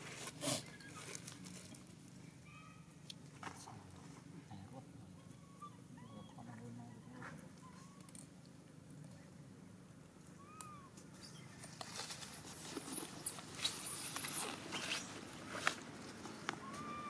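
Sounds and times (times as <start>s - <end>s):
dry leaves rustling: 11.6s - 17.0s.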